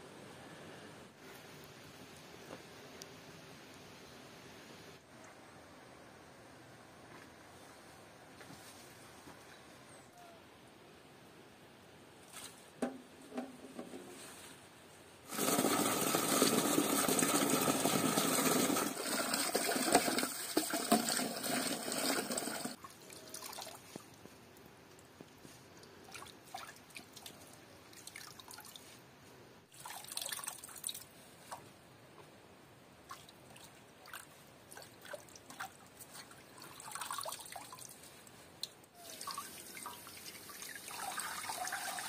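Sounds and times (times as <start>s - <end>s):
tap water running into pot: 15.3s - 22.8s.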